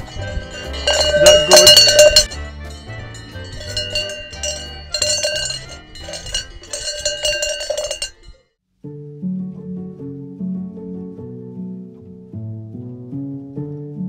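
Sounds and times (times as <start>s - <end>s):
music with bell-like strikes: 0.0s - 8.3s.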